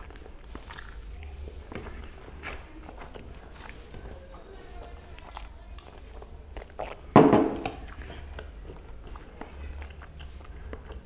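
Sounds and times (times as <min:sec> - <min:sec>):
person chewing: 0:00.0 - 0:11.0.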